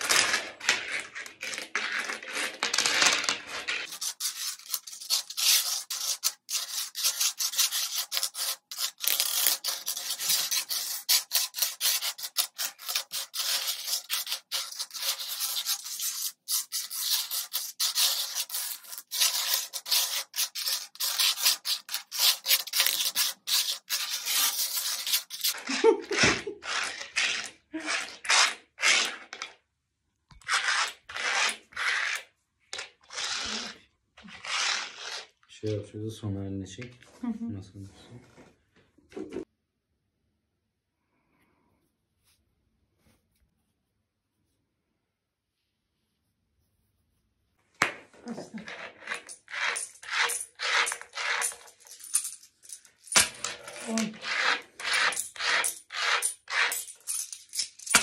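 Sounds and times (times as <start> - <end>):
coins scraping on wooden table: 0.0 - 29.6, 30.3 - 35.4, 47.8 - 58.0.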